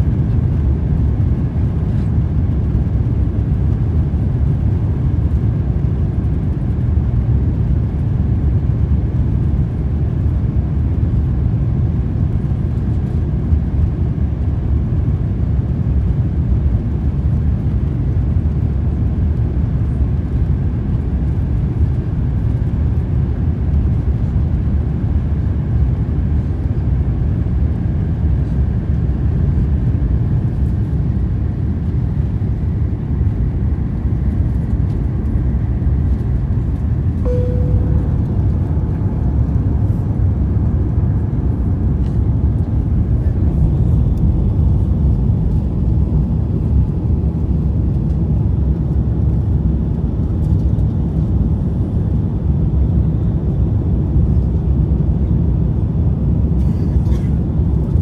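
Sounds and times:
jet engine cabin rumble: 0.0s - 58.0s
brief tone: 37.2s - 39.2s
airflow noise: 37.2s - 40.4s.

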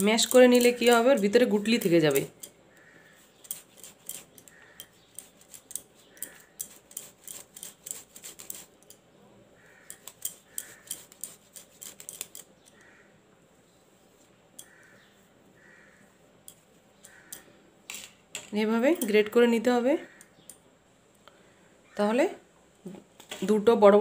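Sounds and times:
potato grating on metal grater: 0.0s - 2.5s, 3.1s - 8.8s, 9.7s - 12.6s
grater clicking on steel plate: 0.0s - 2.6s, 3.4s - 9.0s, 9.8s - 12.8s.

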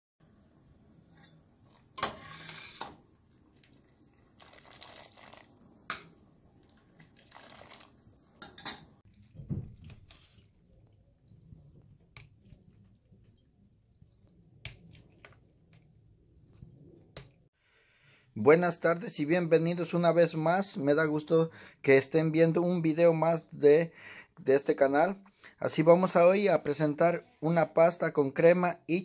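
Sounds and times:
water splashing and dripping: 3.3s - 8.4s, 9.0s - 15.2s.

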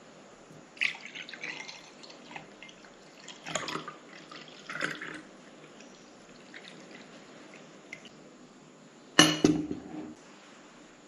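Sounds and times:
soda pouring into a glass: 0.8s - 7.6s.

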